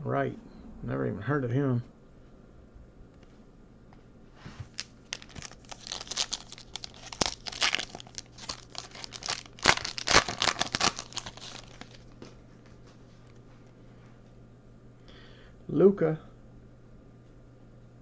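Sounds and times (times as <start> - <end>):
foil wrapper tearing and crinkling: 4.6 - 12.2.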